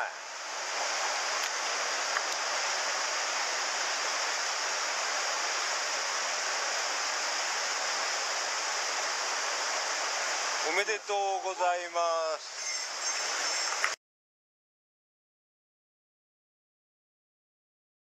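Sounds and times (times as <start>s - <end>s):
small waterfall rushing: 0.0s - 12.1s.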